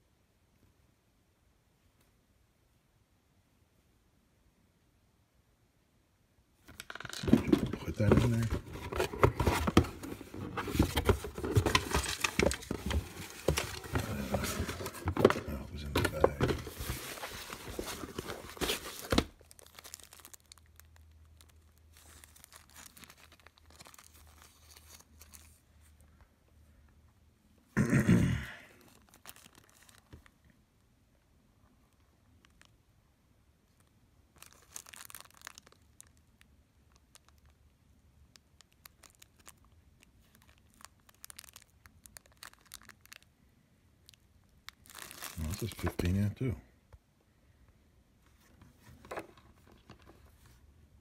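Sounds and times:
plastic bag crinkling: 6.7 - 25.7, 28.8 - 30.4, 34.3 - 37.6, 38.3 - 43.3, 44.0 - 46.6.

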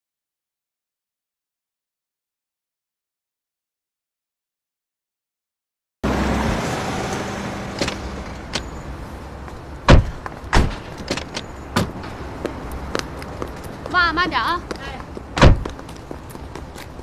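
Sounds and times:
car door unlatching and opening: 7.8 - 8.7, 9.9 - 12.1, 15.4 - 15.7.

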